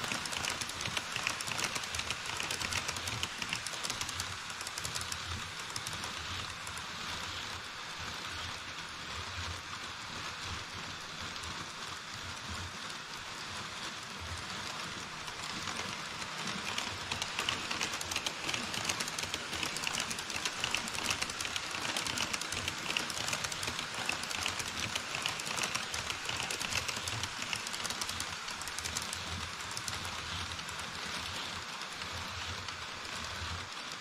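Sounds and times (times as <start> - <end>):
model train wheels clicking: 0.0 - 34.0.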